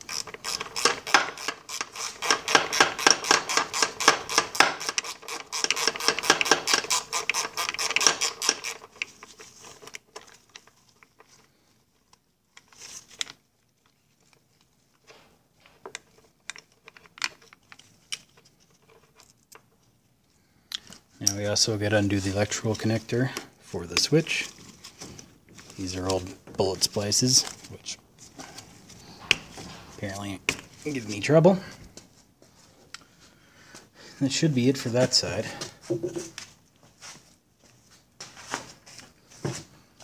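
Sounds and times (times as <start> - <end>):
ratchet wrench clicking: 0.1 - 8.9.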